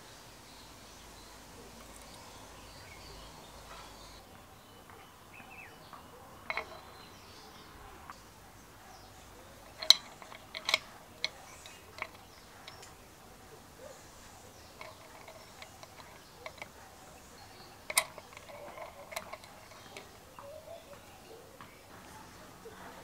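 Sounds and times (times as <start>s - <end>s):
drill parts clicking against metal housing: 6.5s - 6.8s, 9.6s - 13.0s, 14.6s - 20.5s.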